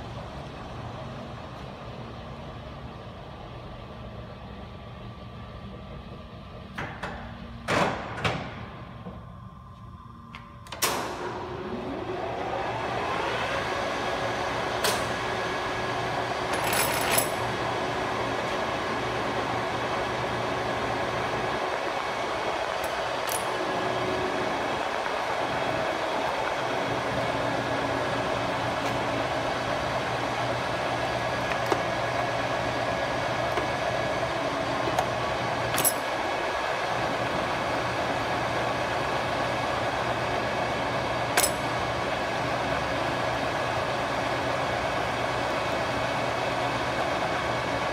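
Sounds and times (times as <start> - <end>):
lathe humming with gear whine: 0.0 - 7.6, 8.8 - 47.9
lever clicks and clanks: 16.5 - 17.5, 22.8 - 23.6, 34.8 - 36.2, 41.4 - 41.8.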